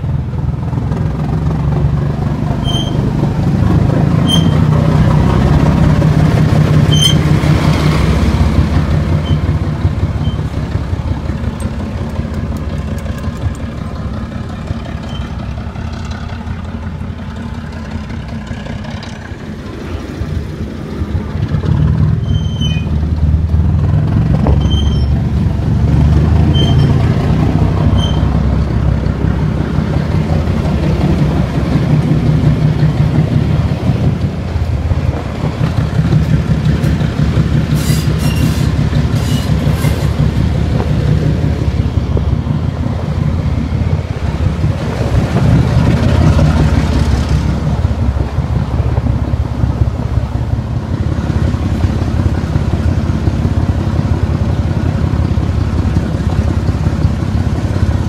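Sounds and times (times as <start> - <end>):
diesel engine rumbling: 0.0 - 58.0.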